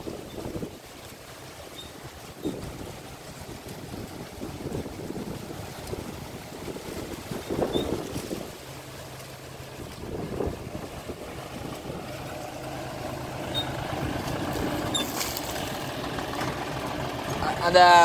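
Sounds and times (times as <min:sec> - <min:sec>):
wind gusts on microphone: 0:00.0 - 0:01.0, 0:02.0 - 0:08.7, 0:09.7 - 0:16.6
tractor diesel engine running: 0:09.5 - 0:18.0.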